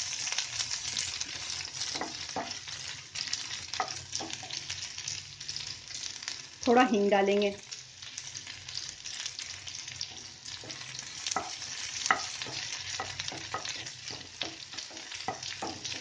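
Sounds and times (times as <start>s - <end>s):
food sizzling in hot oil: 0.0s - 16.0s
spatula scraping and tapping pan: 0.9s - 2.9s, 3.7s - 4.7s, 10.0s - 16.0s.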